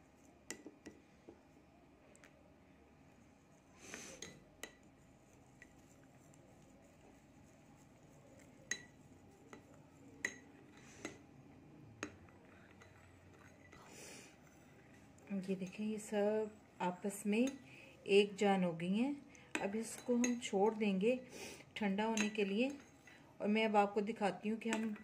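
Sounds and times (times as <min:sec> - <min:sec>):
metal spoon stirring thick wax: 0:04.6 - 0:11.2, 0:12.0 - 0:16.6.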